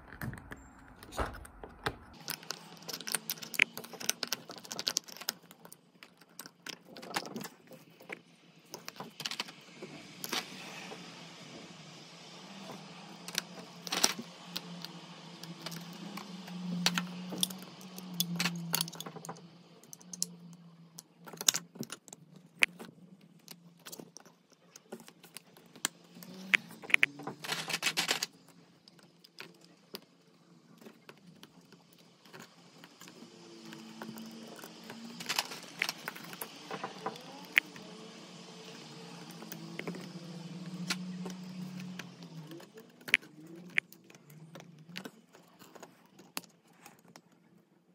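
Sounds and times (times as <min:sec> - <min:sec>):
hard plastic parts clicking: 0:00.0 - 0:09.6, 0:12.7 - 0:30.1.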